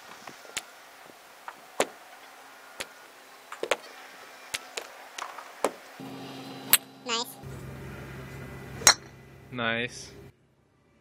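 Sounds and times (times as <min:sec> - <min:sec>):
golf clubs striking balls: 0:08.7 - 0:09.4.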